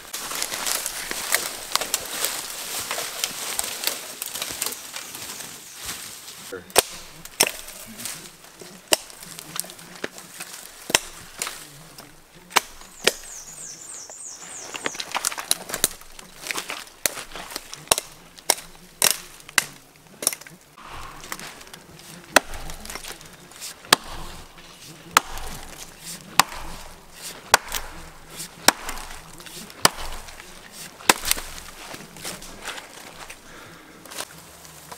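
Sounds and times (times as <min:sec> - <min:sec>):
hatchet chopping wood: 0:00.2 - 0:02.0, 0:06.7 - 0:07.9, 0:08.7 - 0:09.4, 0:10.0 - 0:11.6, 0:12.4 - 0:13.4, 0:14.8 - 0:33.5.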